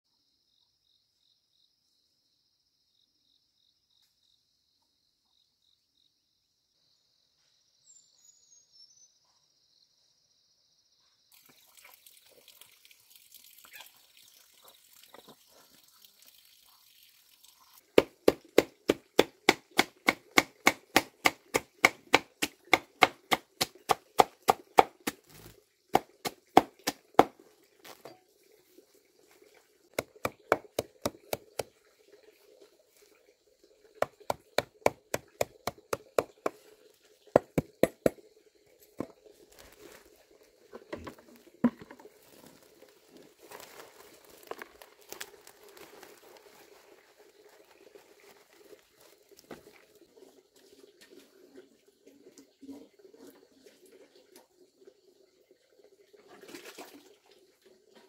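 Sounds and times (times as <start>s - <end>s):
faint high insect drone: 0.1s - 14.8s
blade chopping on hard surface: 18.0s - 25.2s, 30.0s - 31.7s.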